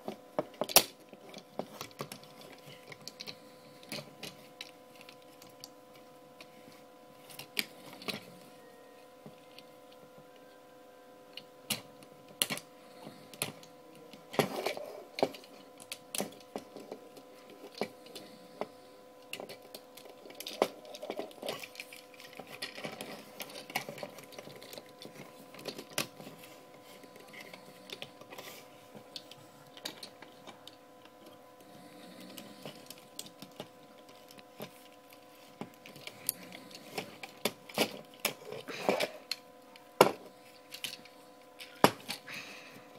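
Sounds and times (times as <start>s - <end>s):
faint steady hum: 0.0s - 42.9s
plastic toy parts clicking: 0.4s - 5.7s, 19.2s - 28.4s, 29.0s - 31.2s.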